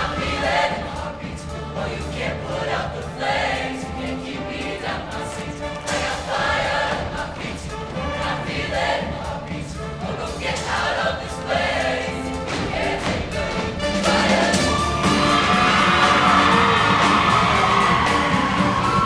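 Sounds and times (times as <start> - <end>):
choir singing with live band: 0.0 - 19.0
drum hits: 4.5 - 19.0.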